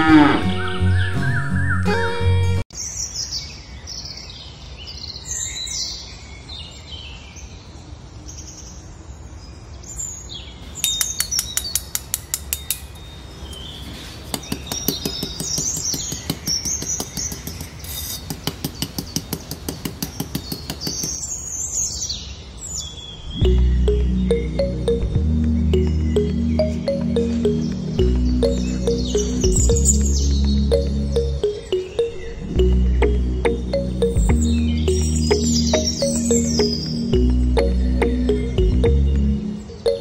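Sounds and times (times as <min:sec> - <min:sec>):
birds chirping: 0:09.9 - 0:40.0.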